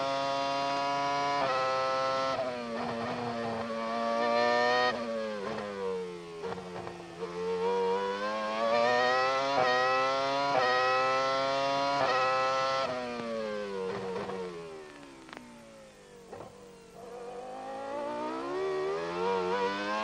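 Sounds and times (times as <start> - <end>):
racing car engine revving: 6.4 - 13.0, 16.4 - 20.0.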